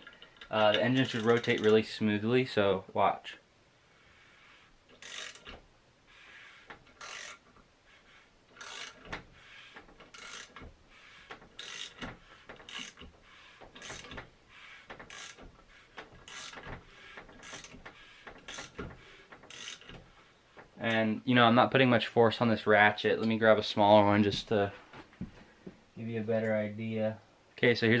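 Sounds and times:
hand ratchet clicking: 0.0s - 1.8s, 4.9s - 5.6s, 6.6s - 7.6s, 8.5s - 20.7s.

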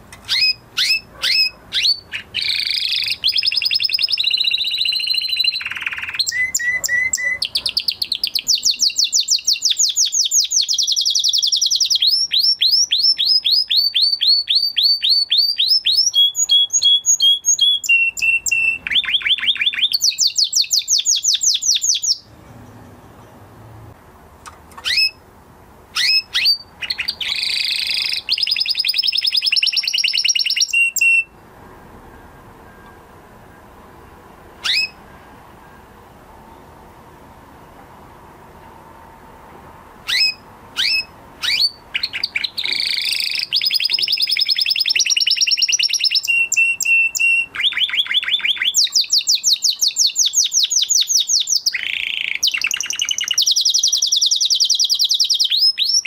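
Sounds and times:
canary singing trills: 0.0s - 23.4s, 24.4s - 25.2s, 25.9s - 31.4s, 32.1s - 35.9s, 40.0s - 56.0s
canary short calls: 0.3s - 8.4s, 24.8s - 25.2s, 26.0s - 28.7s, 34.6s - 35.0s, 40.1s - 44.4s.

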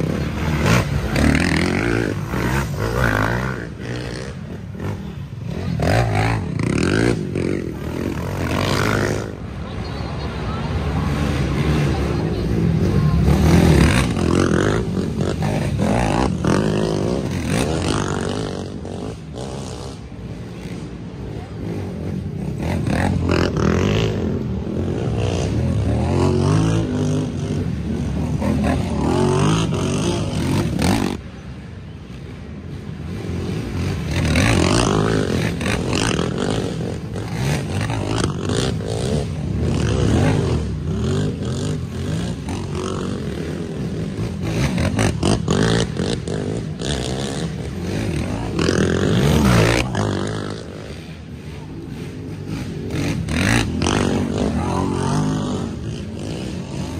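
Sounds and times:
atv engines revving: 0.0s - 56.9s.

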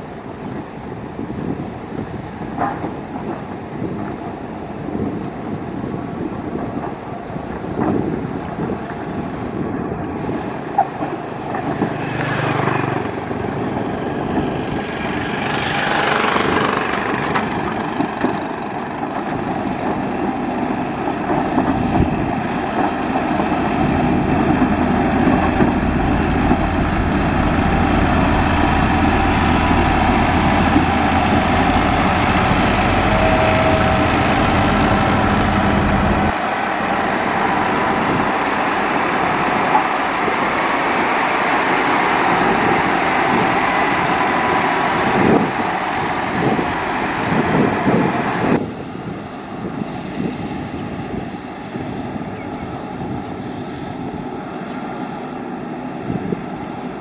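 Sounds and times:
grader diesel engine rumbling: 12.6s - 41.8s.

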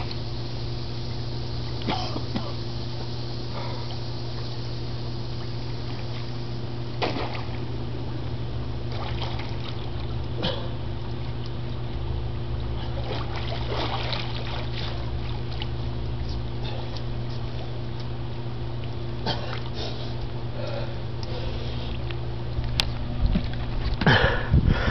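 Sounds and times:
steady low hum: 0.0s - 24.9s
liquid splashing and sloshing: 5.4s - 7.7s, 8.9s - 18.1s, 18.7s - 20.2s, 21.2s - 24.3s.

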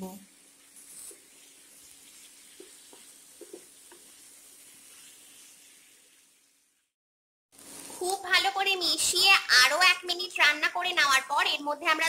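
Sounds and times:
potatoes sizzling in a frying pan: 0.0s - 6.9s, 7.6s - 12.0s
spatula stirring: 0.5s - 6.6s.

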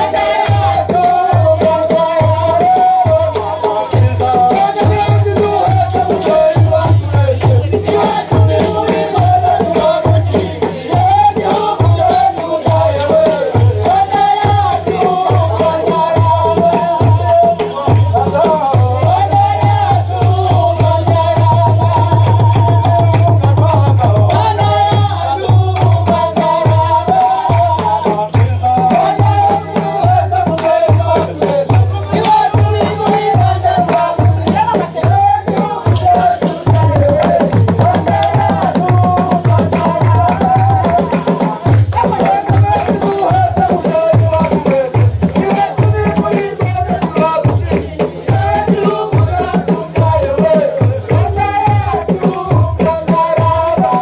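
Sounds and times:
drums beating: 0.0s - 54.0s
group of voices singing: 0.0s - 54.0s.

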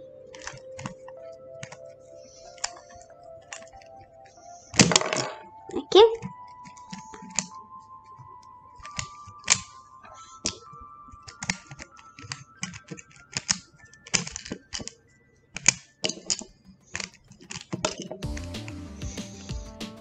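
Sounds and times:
plastic puzzle cube pieces clicking: 0.3s - 7.6s, 10.4s - 18.2s.

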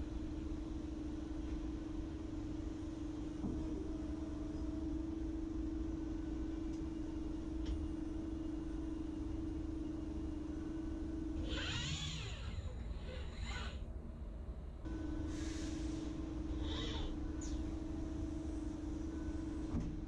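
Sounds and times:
machine hum with steady tone: 0.0s - 20.0s
servo motor whines: 11.5s - 12.7s.

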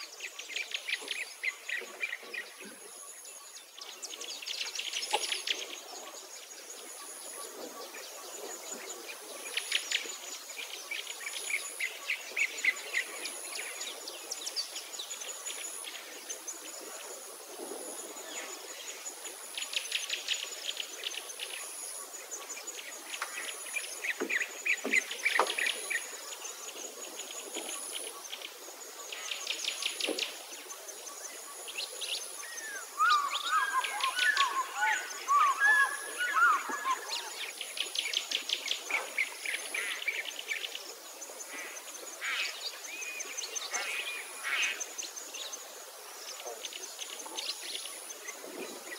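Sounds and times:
birds chirping and trilling: 0.0s - 48.9s
swooping bird calls: 31.6s - 40.7s.

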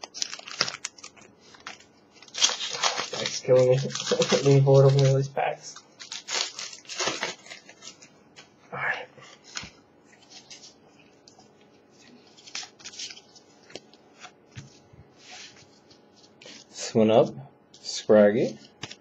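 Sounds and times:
foil pack tearing and crinkling: 0.0s - 8.1s, 12.3s - 13.2s.

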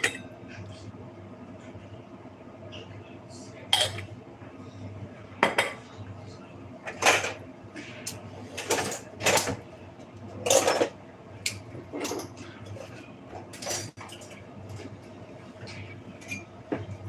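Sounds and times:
dishes and cutlery clattering: 6.9s - 7.4s, 8.6s - 9.6s, 10.4s - 12.8s, 13.5s - 14.4s, 16.2s - 16.9s.

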